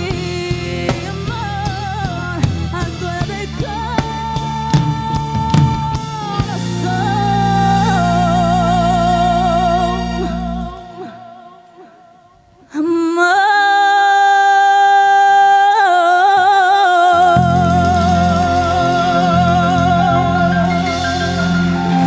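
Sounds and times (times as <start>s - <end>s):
woman singing with vibrato: 0.0s - 22.0s
low musical accompaniment: 17.2s - 22.0s.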